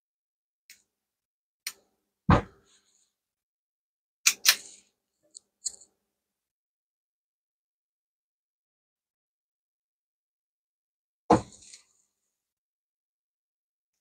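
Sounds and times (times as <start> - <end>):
dull heavy thump: 2.3 - 2.6.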